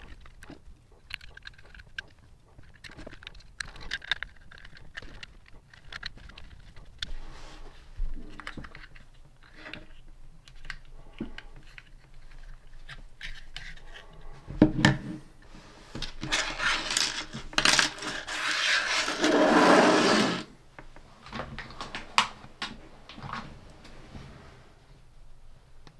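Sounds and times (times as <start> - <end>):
plastic parts clicking and clattering: 0.0 - 7.1, 8.2 - 15.0, 16.0 - 20.3
rubbing and scraping: 15.5 - 20.5.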